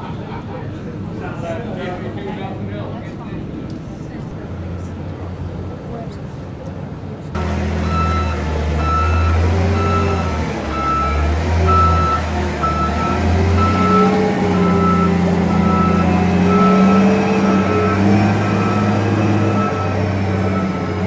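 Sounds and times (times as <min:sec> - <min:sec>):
vehicle engine droning: 0:00.0 - 0:21.0
backup alarm beeping: 0:07.8 - 0:21.0.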